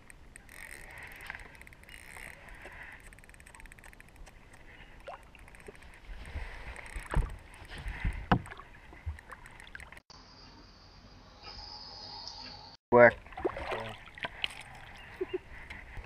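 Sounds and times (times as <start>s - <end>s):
thumps and knocks against boat: 7.0s - 9.2s.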